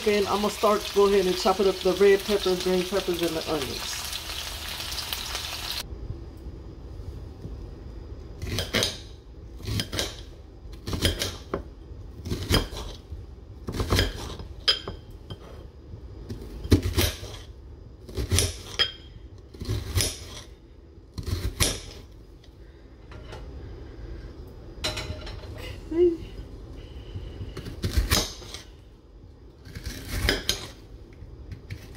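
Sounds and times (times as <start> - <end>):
knife cutting onion on plate: 8.4 - 11.6, 12.2 - 13.0, 13.7 - 15.6.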